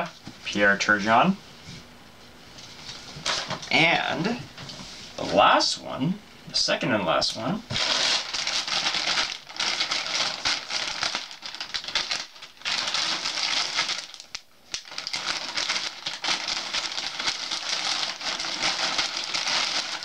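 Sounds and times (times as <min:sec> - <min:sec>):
plastic package tearing and crinkling: 0:07.7 - 0:20.0.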